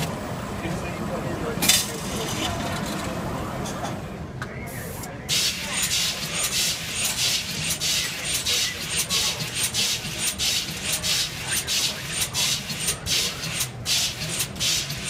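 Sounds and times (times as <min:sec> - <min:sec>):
pneumatic air hissing bursts: 0:04.9 - 0:15.0.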